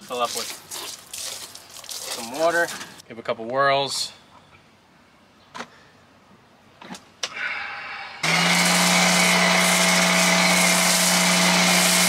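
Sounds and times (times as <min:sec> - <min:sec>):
foam spraying hiss: 0:08.2 - 0:12.0
pressure washer motor hum: 0:08.2 - 0:12.0.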